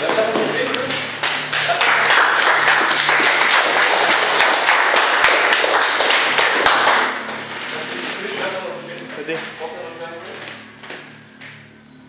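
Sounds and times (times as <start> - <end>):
people clapping: 0.0 - 7.6.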